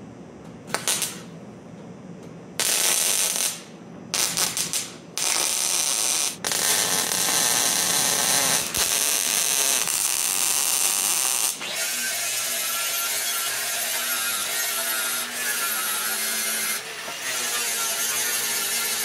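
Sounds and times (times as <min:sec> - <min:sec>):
welder arc crackling: 0:00.7 - 0:01.3, 0:02.6 - 0:11.7.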